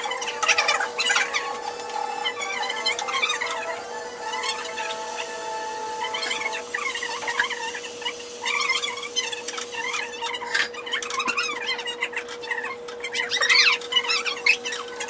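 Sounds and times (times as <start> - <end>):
steady hum: 0.0 - 11.0
sped-up squeaky voices: 0.0 - 15.0.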